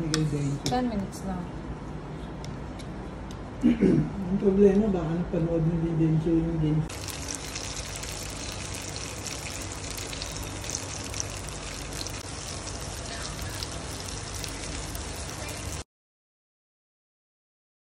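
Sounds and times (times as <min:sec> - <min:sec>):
omelette sizzling in oil: 0:06.9 - 0:15.8.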